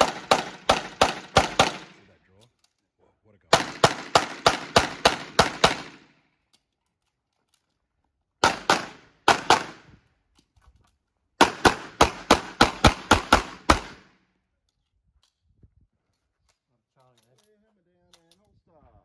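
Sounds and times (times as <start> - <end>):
handgun shots with echo: 0.0 - 2.0, 3.5 - 6.1, 8.4 - 9.8, 11.4 - 14.1.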